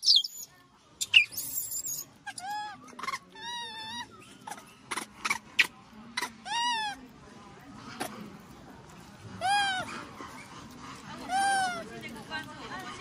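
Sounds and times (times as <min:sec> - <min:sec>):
baby monkey crying: 0:01.1 - 0:05.4, 0:06.2 - 0:07.0, 0:09.4 - 0:09.9.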